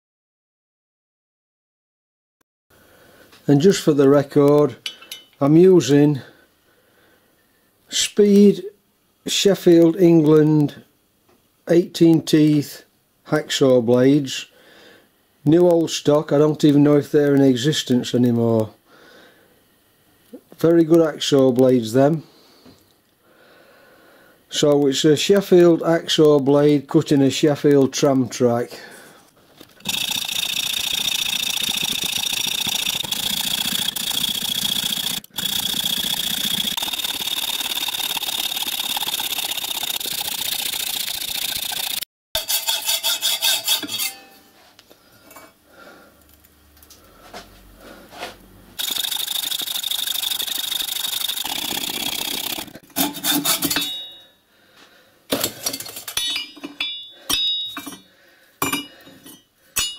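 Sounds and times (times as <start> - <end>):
metallic knocks and clinks: 4.8 - 5.4, 55.4 - 59.9
hacksaw cutting steel rail: 42.4 - 44.4, 51.4 - 54.2.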